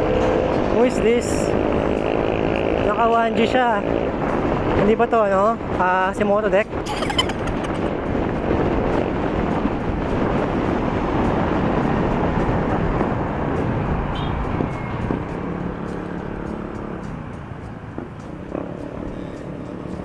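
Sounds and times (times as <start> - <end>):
road noise: 0.0 - 20.0
wind rushing over microphone: 3.8 - 20.0.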